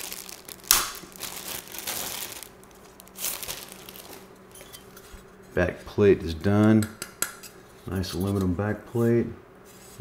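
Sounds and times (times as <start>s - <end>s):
plastic bag crinkling: 0.0s - 4.8s.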